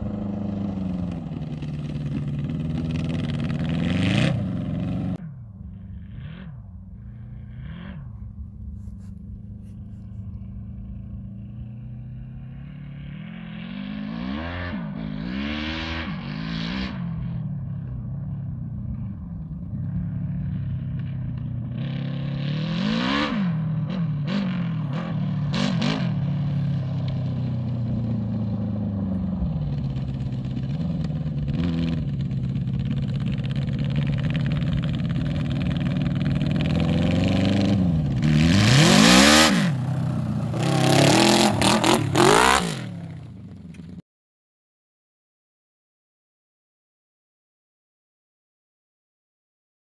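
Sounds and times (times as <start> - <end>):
quad bike engine revving: 0.0 - 8.6, 9.6 - 18.0, 19.7 - 44.0.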